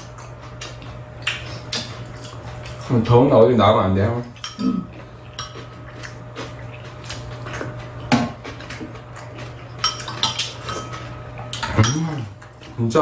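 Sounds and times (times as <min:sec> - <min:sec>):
steady low hum: 0:00.0 - 0:13.0
metal spoons clinking against bowls: 0:04.4 - 0:05.8, 0:09.8 - 0:12.3.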